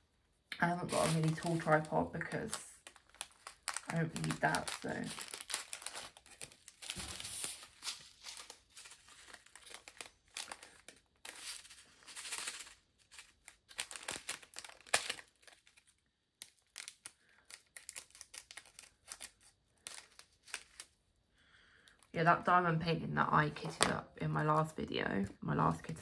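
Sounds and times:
plastic bags crinkling: 0.6s - 21.0s.

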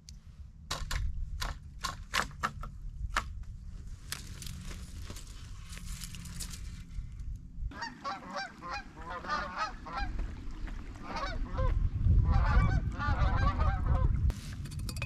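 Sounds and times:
geese honking: 7.7s - 10.2s, 11.0s - 11.7s, 12.3s - 14.0s.

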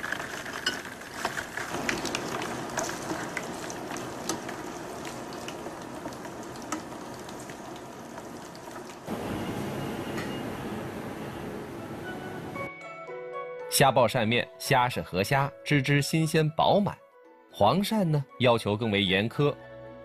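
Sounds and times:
shrimp sizzling in hot oil: 0.0s - 11.0s.

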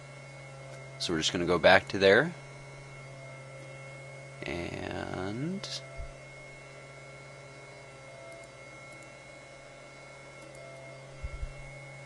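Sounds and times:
low electrical hum with hiss: 0.0s - 12.0s.

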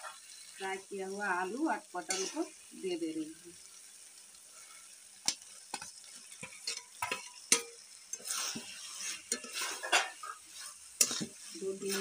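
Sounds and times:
food sizzling: 0.0s - 12.0s
spatula scraping metal pan: 2.0s - 2.5s, 5.8s - 12.0s.

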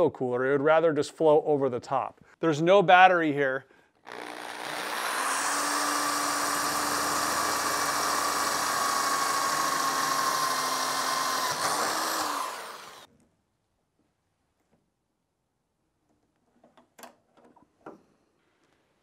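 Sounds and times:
electric drill drilling: 4.0s - 13.1s.

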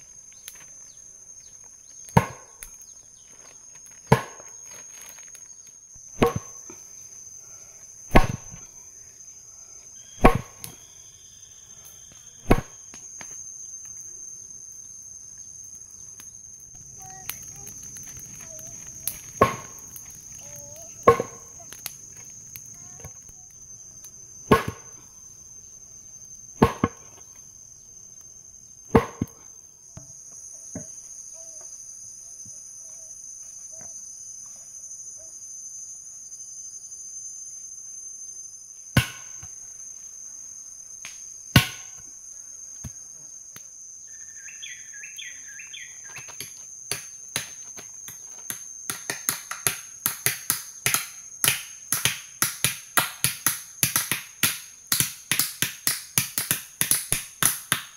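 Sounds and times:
forest insects droning: 0.0s - 57.9s
sharp knocks: 6.2s - 6.5s.

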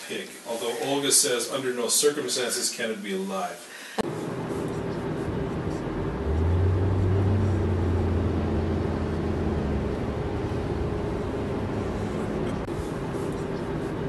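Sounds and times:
car cabin road noise: 4.0s - 14.0s
deep hum: 4.2s - 14.0s.

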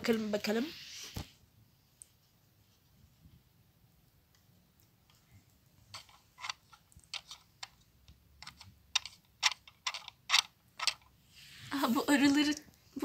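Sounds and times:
plastic toy parts clicking: 5.9s - 7.8s, 8.4s - 11.1s.

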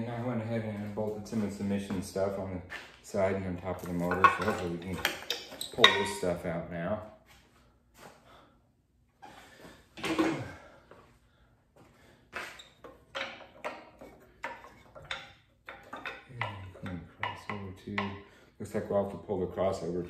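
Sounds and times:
hoses and metal piping rattling: 0.0s - 6.6s, 12.3s - 20.0s.

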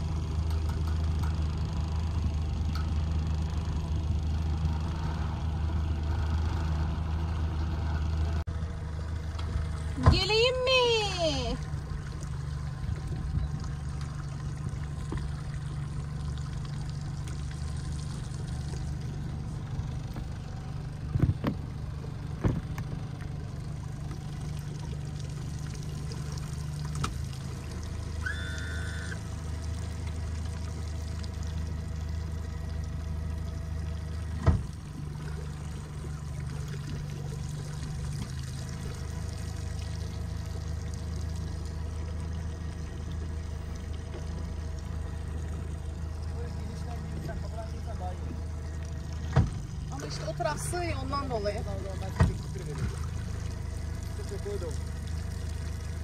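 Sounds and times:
motorboat engine running: 0.0s - 56.0s
water splashing and trickling: 0.0s - 56.0s
short beep: 28.2s - 29.2s.

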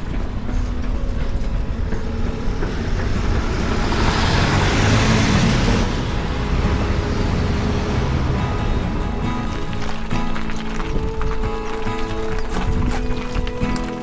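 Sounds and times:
lorry driving past: 0.0s - 14.0s
low rumble of street traffic: 0.0s - 14.0s.

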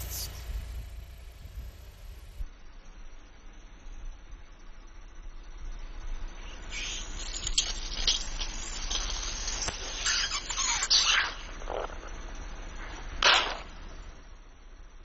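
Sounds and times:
liquid squirting in hissing spurts: 6.7s - 11.4s
liquid spattering on asphalt: 6.9s - 11.3s.

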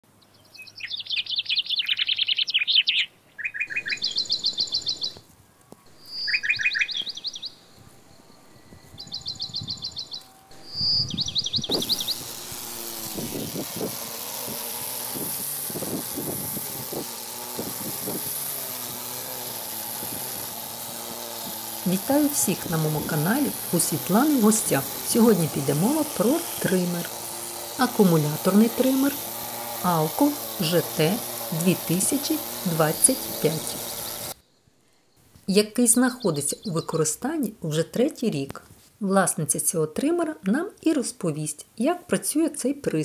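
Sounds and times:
songbird trilling: 0.3s - 5.2s, 5.9s - 12.3s, 36.0s - 37.0s
string trimmer cutting grass: 3.7s - 7.1s, 8.9s - 34.4s.

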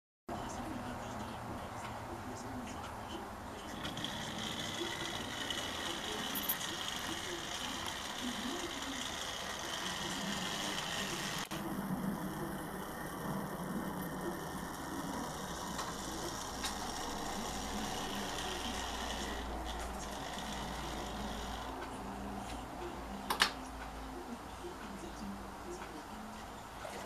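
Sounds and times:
model train electric motor running: 3.6s - 21.8s.

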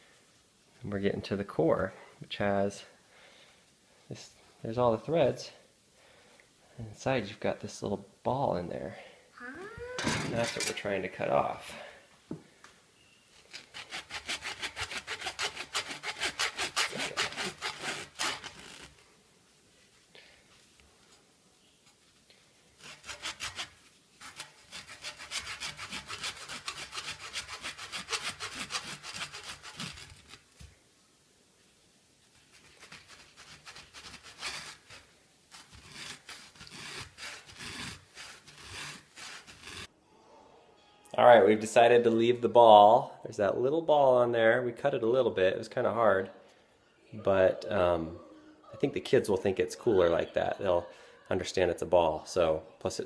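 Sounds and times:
knife sawing through yarn: 13.5s - 19.0s, 22.8s - 30.4s, 32.5s - 39.9s.

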